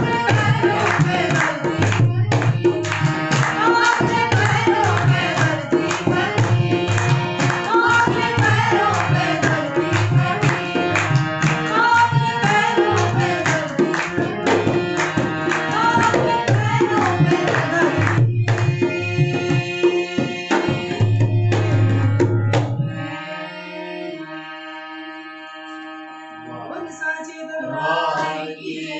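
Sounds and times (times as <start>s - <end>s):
hand drum rhythm: 0.0s - 23.0s
people singing: 0.0s - 25.8s, 26.4s - 28.9s
harmonium: 0.0s - 28.9s.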